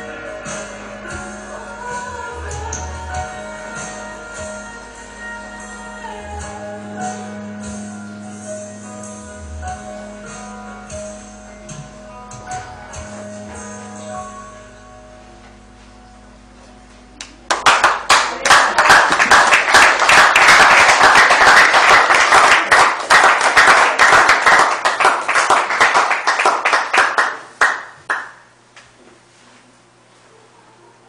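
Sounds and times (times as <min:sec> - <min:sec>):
audience applauding: 0:17.5 - 0:28.4.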